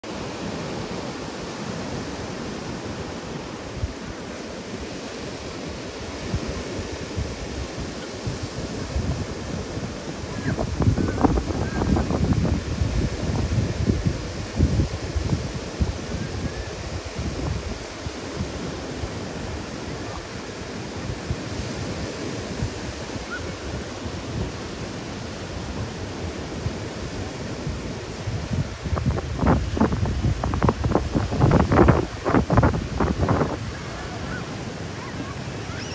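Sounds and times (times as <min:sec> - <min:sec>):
surf washing up a beach: 0:00.0 - 0:35.9
wind thumps on microphone: 0:06.3 - 0:18.6, 0:27.6 - 0:34.1.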